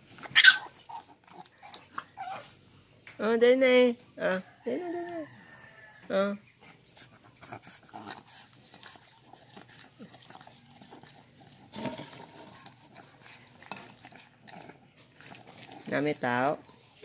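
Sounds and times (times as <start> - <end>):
puppy chewing and smacking: 6.7 - 16.8.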